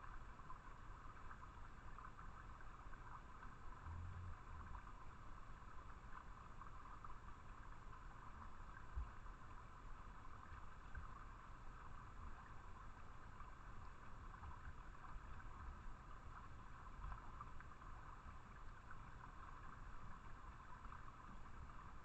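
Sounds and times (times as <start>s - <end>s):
small stream trickling: 0.0s - 22.0s
low rumble: 3.7s - 4.9s.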